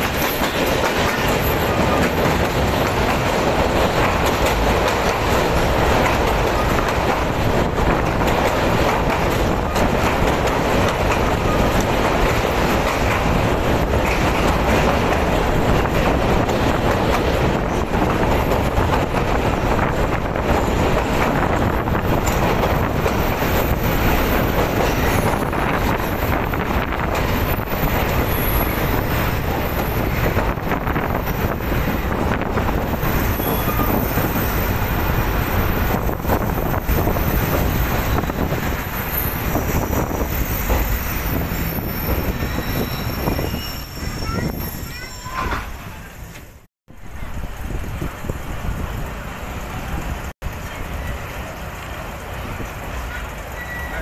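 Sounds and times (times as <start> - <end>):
train wheels rumbling on rails: 0.0 - 54.0
high wheel squeal: 27.4 - 30.3, 33.0 - 34.8, 36.6 - 46.1, 53.5 - 54.0.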